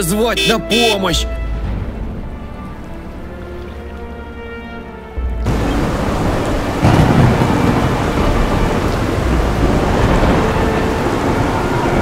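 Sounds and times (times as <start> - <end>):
heavy rain: 0.5 - 12.0
thunder: 5.5 - 12.0.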